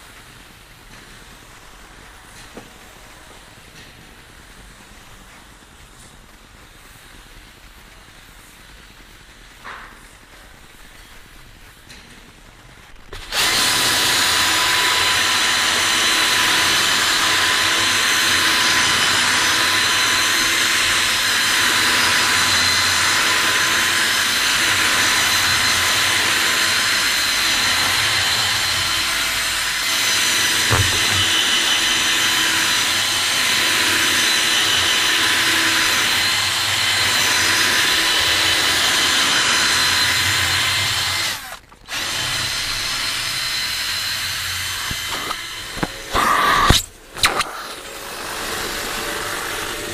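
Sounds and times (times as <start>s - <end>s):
power drill motor whine: 13.2s - 49.9s
knock: 30.7s - 31.4s.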